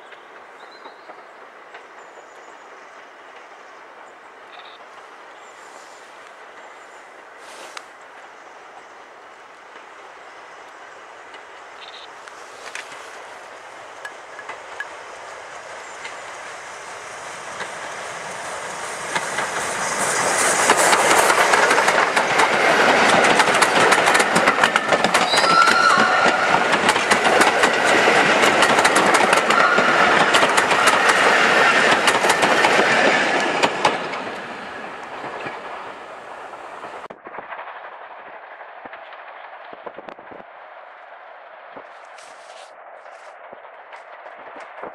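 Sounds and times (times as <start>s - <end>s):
steam train passing: 0.0s - 40.0s
wheels clicking over rail joints: 11.2s - 37.1s.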